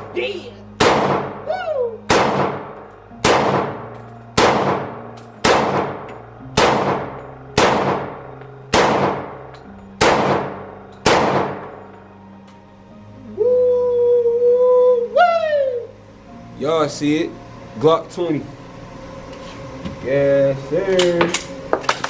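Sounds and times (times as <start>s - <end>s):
pistol shots echoing indoors: 0.8s - 1.5s, 2.1s - 11.8s.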